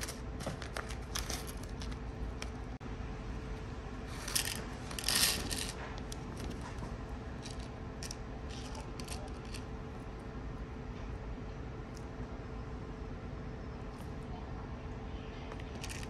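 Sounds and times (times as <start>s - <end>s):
small charms clattering into plastic box: 0.0s - 2.0s, 4.1s - 6.6s, 7.4s - 9.7s, 15.6s - 16.0s
fingers sorting clicking charms: 0.0s - 2.6s, 4.2s - 6.6s, 7.4s - 9.7s, 15.5s - 16.0s.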